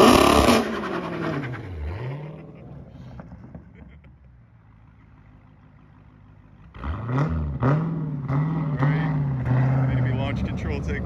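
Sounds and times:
car engine revving: 0.0 - 4.0, 6.6 - 11.0.

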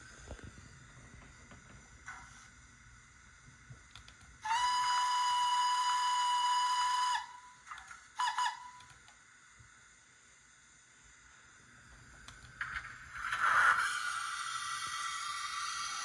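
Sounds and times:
steam whistle from small speaker: 4.4 - 8.9.

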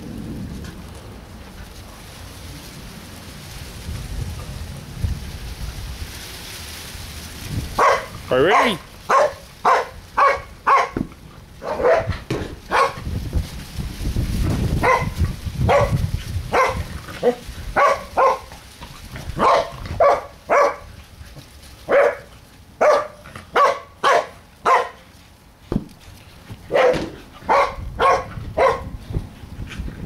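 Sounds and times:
dog barking: 7.8 - 11.0, 11.6 - 12.1, 12.7 - 13.0, 14.8 - 18.5, 19.4 - 20.9, 21.9 - 25.0, 26.7 - 28.9.

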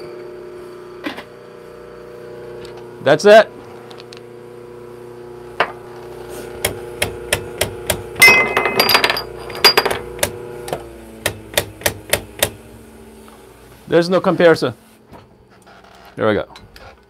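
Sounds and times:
steady hum: 0.0 - 15.6
metallic knocks on grinder: 11.2 - 12.6.

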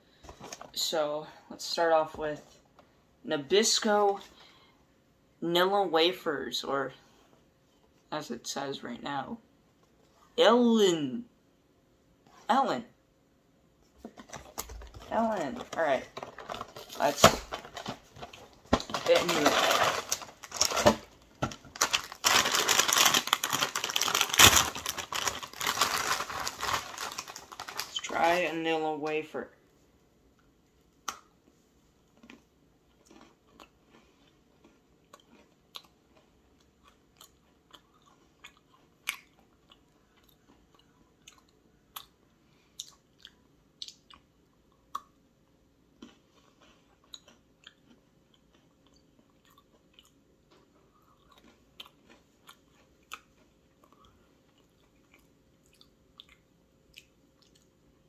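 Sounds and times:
cookie chewing crunches: 18.2 - 20.7, 21.8 - 28.4, 32.0 - 57.8.

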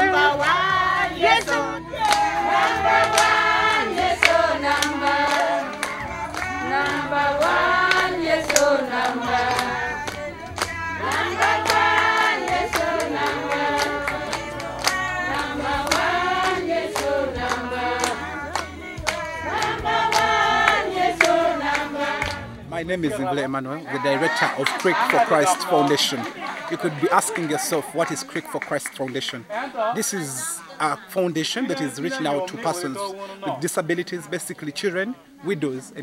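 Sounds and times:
group of voices singing: 0.0 - 28.8
hand clapping: 1.3 - 22.4.

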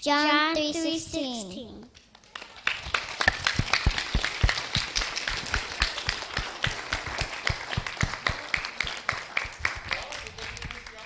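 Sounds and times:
close loud even hand clapping: 2.0 - 11.0
audience applauding: 2.2 - 11.0.

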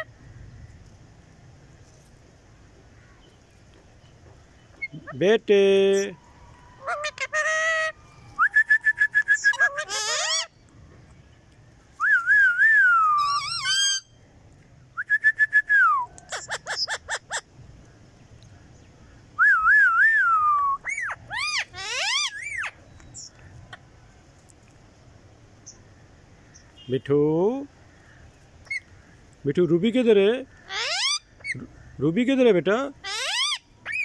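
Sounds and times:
parakeets whistling and chattering: 4.6 - 6.2, 6.8 - 10.6, 12.1 - 14.2, 15.0 - 17.5, 19.4 - 23.4, 28.6 - 28.9, 30.6 - 31.8, 33.0 - 34.0.

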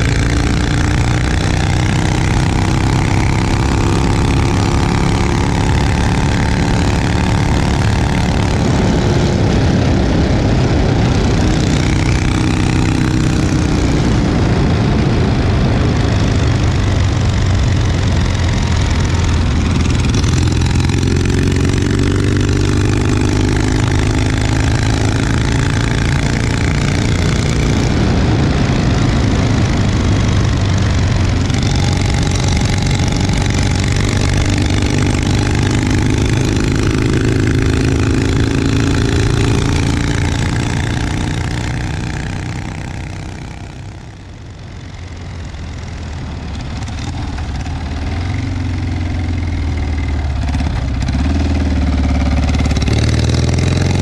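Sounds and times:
motorcycle engine exhaust: 0.0 - 54.0.

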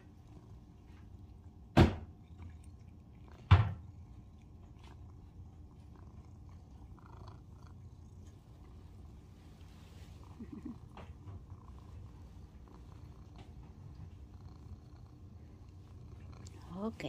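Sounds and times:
faint room noise: 0.0 - 17.0.

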